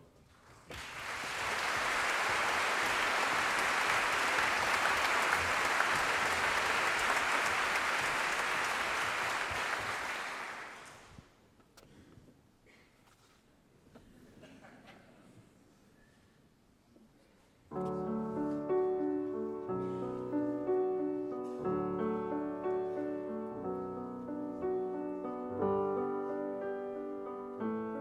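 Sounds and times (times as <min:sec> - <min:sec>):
audience applauding: 0:00.7 - 0:11.2.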